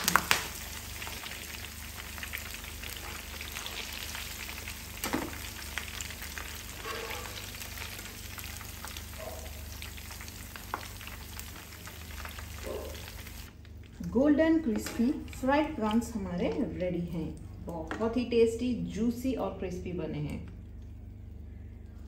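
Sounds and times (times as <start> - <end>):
deep-frying sizzle with crackles: 0.0 - 16.7.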